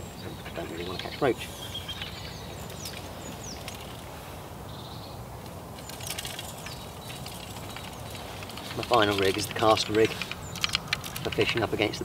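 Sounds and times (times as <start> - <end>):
high bird chirps: 0.0 - 4.0
faint clicks: 1.9 - 4.1, 5.4 - 11.7.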